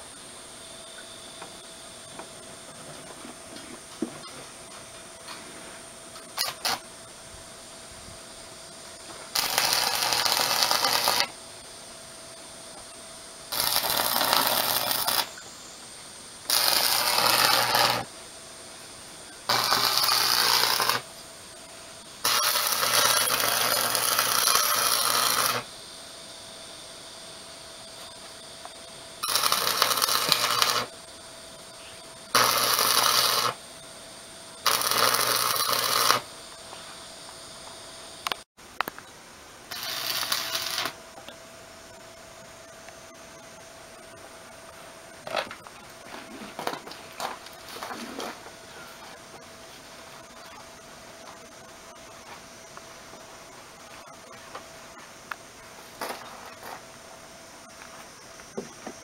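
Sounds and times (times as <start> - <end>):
low welding hum: 0.0 - 59.0
welding arc crackling: 6.2 - 6.8, 9.0 - 11.4, 13.5 - 15.6, 16.4 - 18.1, 19.4 - 21.3, 22.0 - 25.7, 29.2 - 31.0, 32.3 - 33.6, 34.6 - 36.3, 39.7 - 41.0.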